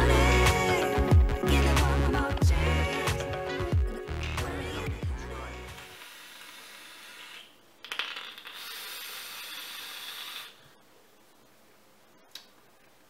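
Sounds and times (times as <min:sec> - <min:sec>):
breathy vapour hiss: 0:08.7 - 0:10.8.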